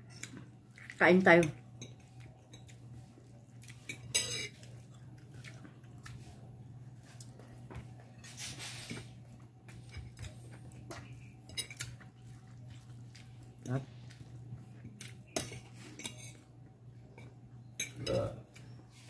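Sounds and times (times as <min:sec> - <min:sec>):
scrapes and clinks on glass plate: 0:03.9 - 0:04.6, 0:15.4 - 0:16.4.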